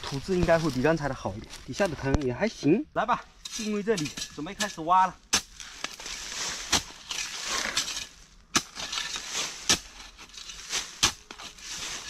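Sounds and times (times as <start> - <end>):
earth crunching and scraping: 0.0 - 12.0
spade striking gritty soil: 3.4 - 12.0.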